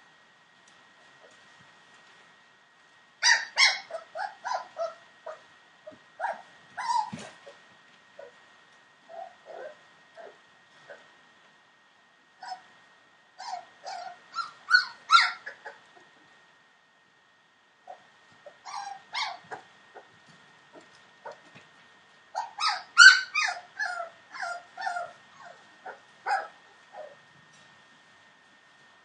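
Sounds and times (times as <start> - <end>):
puppies whimpering and yipping: 3.2 - 7.6, 9.1 - 11.1, 12.4 - 12.7, 13.4 - 16.0, 17.9 - 20.1, 22.4 - 27.2.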